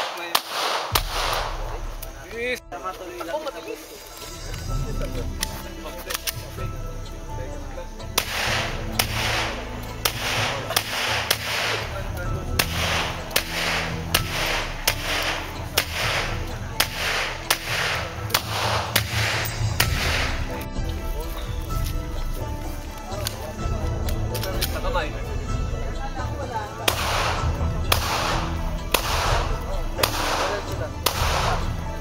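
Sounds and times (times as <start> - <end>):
pistol shots: 0.0 - 1.8, 8.2 - 11.9, 12.6 - 20.5, 26.9 - 31.7.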